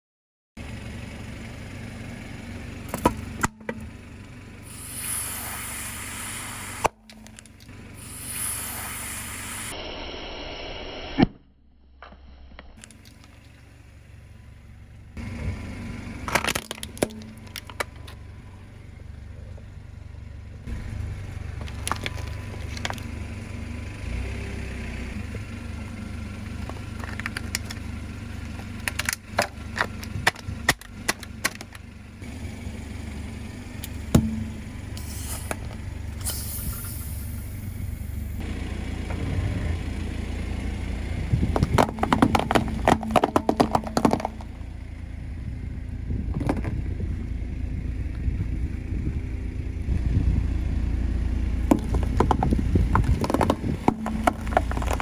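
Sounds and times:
car engine running low: 0.6 - 9.9, 11.5 - 55.0
tyre crushing objects: 41.6 - 44.6, 51.7 - 55.0.

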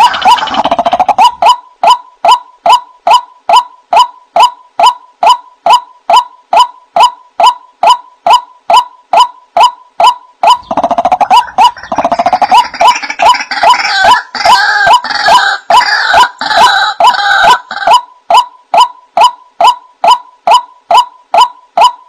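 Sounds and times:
repeated bird call note: 0.0 - 22.0
trilling gurgling bird chorus: 10.6 - 13.8.

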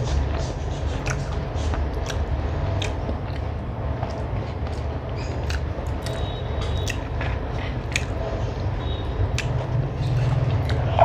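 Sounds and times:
steady low rumble: 0.0 - 11.0
chewing: 0.3 - 11.0.

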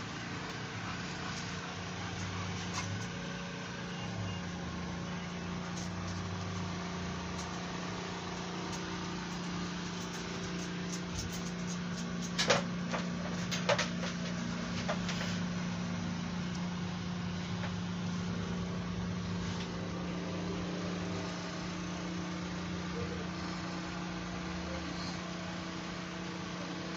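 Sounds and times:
steady mechanical hum: 0.0 - 26.9.

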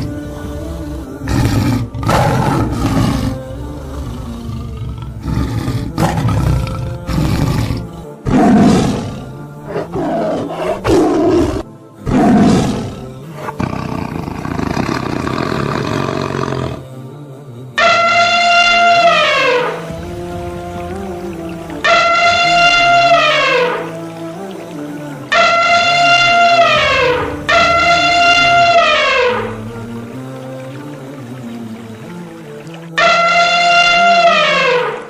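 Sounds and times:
lions roaring and grunting: 0.0 - 16.8.

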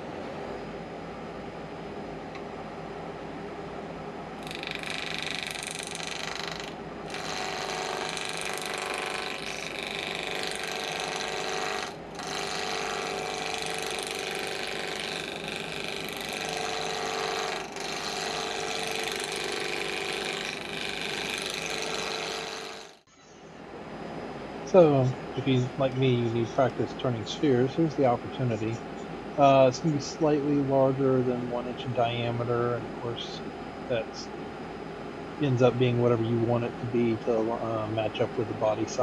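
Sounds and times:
wood lathe running: 4.4 - 23.0
turning tool scraping wood: 4.5 - 23.0.

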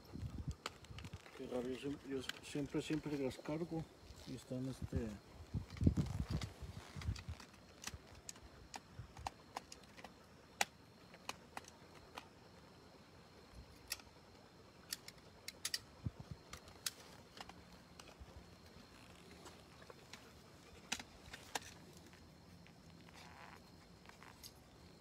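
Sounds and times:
battery lamp clicks and rattles: 5.6 - 12.3, 14.8 - 18.3.

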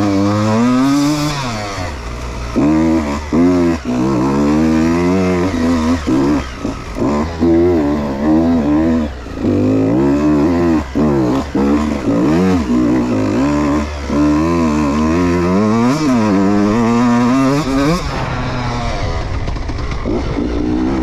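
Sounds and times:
dirt bike engine revving: 0.0 - 21.0.

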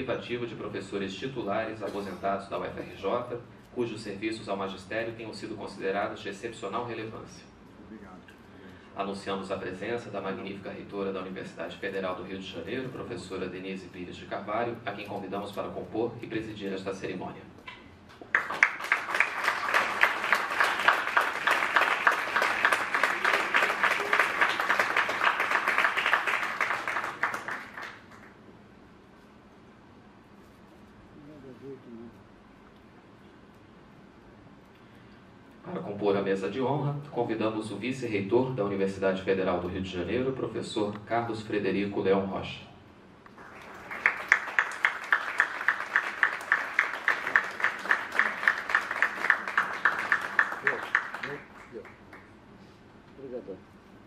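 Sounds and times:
evenly spaced claps: 18.1 - 28.4, 43.3 - 52.3
audience applauding: 18.2 - 28.4, 43.3 - 52.4.

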